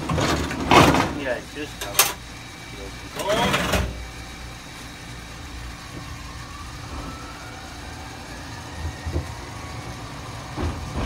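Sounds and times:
faint rising motor whine: 4.0 - 11.0
train wheels rumbling: 5.8 - 11.0.

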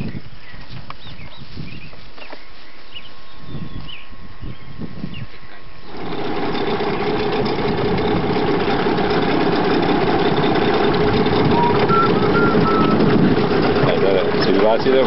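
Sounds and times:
bird chirps: 0.0 - 6.0
outboard motor running: 5.4 - 15.0.

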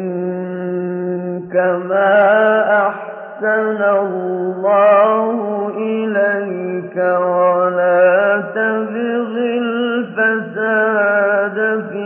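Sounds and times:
man chanting melodically: 0.0 - 12.0.

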